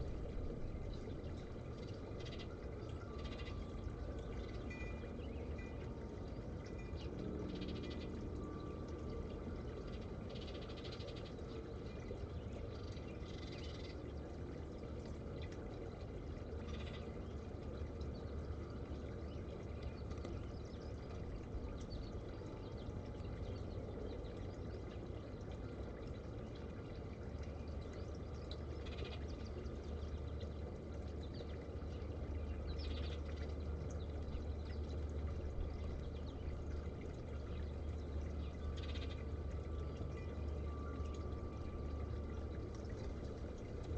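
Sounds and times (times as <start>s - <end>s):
fountain water trickling: 0.0s - 43.9s
low hum: 0.0s - 43.9s
birds chirping: 27.4s - 43.9s.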